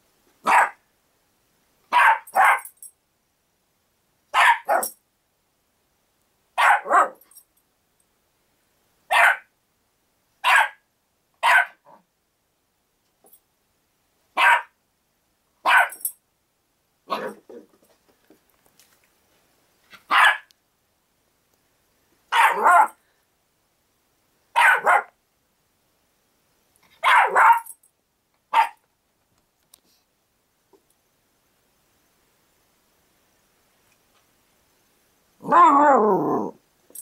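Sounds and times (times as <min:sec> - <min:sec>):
puppy barking: 0:00.4 - 0:00.8, 0:01.9 - 0:02.7, 0:04.3 - 0:05.0, 0:06.6 - 0:07.2, 0:09.1 - 0:09.5, 0:10.4 - 0:10.8, 0:11.4 - 0:12.0, 0:14.4 - 0:14.8, 0:15.6 - 0:16.0, 0:20.1 - 0:20.5, 0:22.3 - 0:23.0, 0:24.6 - 0:25.2, 0:27.0 - 0:27.8, 0:28.5 - 0:28.8.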